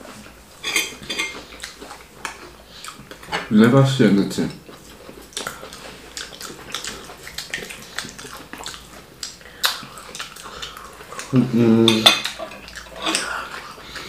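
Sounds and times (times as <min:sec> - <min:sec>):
wet mouth smacks while eating: 0:05.3 - 0:11.3.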